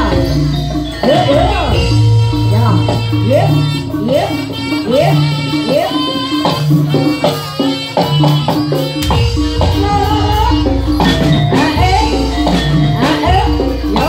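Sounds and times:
pitched melody: 0.0 - 14.0
drum strokes: 6.5 - 14.0
deep bass: 9.0 - 14.0.

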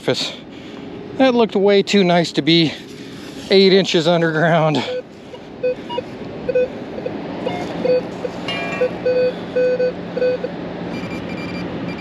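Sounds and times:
steady low hum: 0.0 - 12.0
metal detector low beeps: 4.8 - 12.0
metal detector high beep: 5.6 - 12.0.

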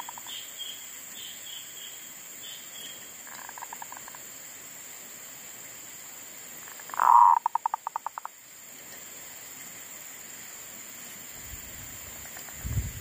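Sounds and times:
high-pitched insect hum: 0.0 - 13.0
dove cooing: 6.9 - 7.8.

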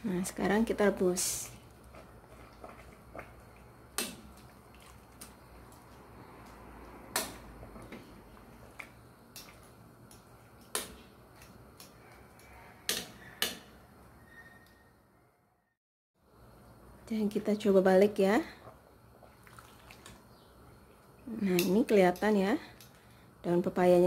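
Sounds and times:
boiling water hiss: 0.0 - 11.3.

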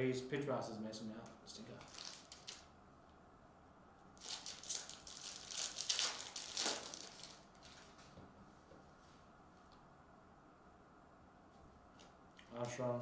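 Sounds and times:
foil wrapper crinkling: 1.8 - 2.7, 4.2 - 8.1.

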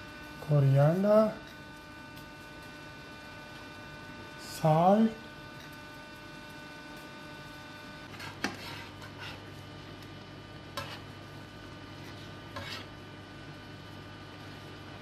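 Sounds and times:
steady low hum: 0.0 - 15.0
metal fork scraping a frying pan: 8.1 - 9.5, 10.7 - 11.1, 12.0 - 13.0.

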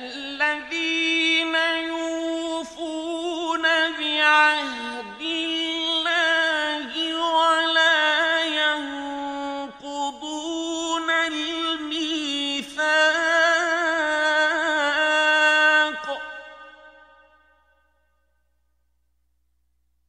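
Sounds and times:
man chanting recitation: 0.0 - 16.9.

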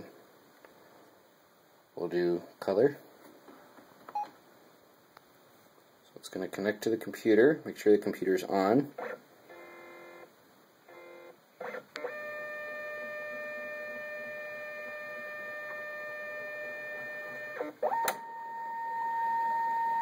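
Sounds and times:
scan head motor whine: 10.9 - 20.0.

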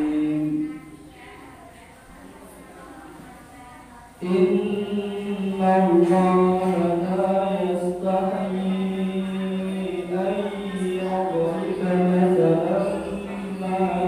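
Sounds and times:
person chanting melodically: 0.0 - 1.0, 4.2 - 14.0.

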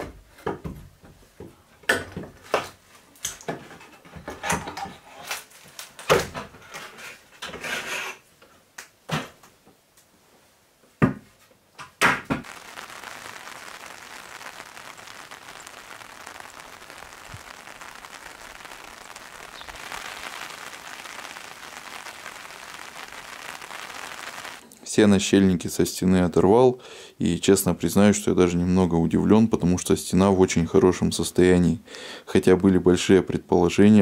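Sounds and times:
rain falling: 12.4 - 24.6.

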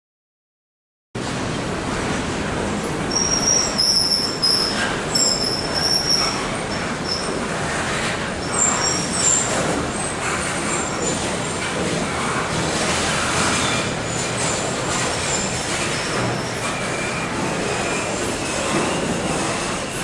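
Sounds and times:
freight train wheels rumbling: 1.2 - 20.0
high-pitched wheel squeals: 3.1 - 7.4, 8.4 - 11.3, 13.5 - 20.0.

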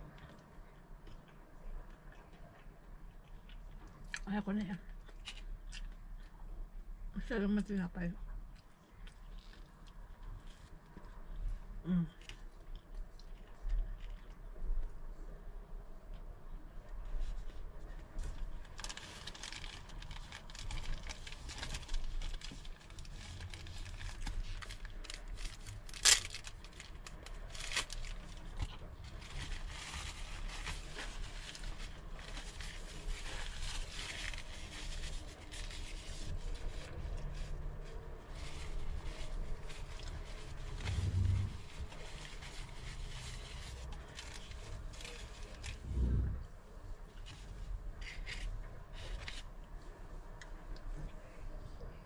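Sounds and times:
paper crinkling and rustling: 17.1 - 45.9, 47.2 - 49.6.

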